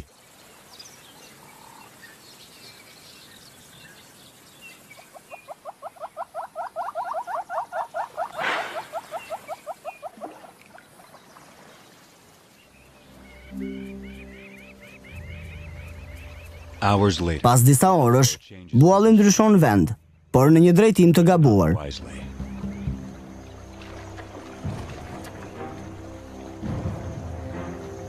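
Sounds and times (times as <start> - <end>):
small birds chirping: 0.0 - 19.4, 21.8 - 27.3
hornbill clucking call: 5.0 - 11.2, 12.9 - 17.0.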